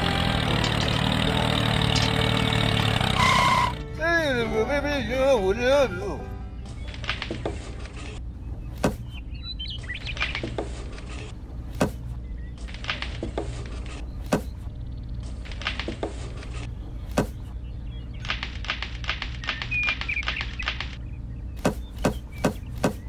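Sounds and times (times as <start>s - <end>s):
sharp plastic clicks: 18.2s - 21.0s.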